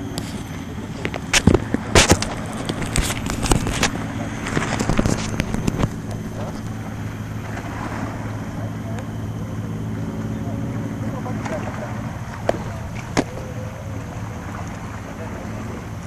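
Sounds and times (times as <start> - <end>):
low engine hum: 0.0 - 16.0
sharp clicks and knocks: 0.2 - 6.8.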